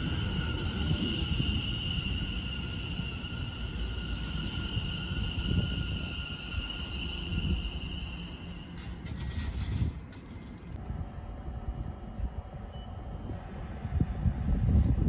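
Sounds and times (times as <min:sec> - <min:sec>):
train wheels rumbling: 0:00.0 - 0:10.9
train traction whine: 0:00.0 - 0:15.0.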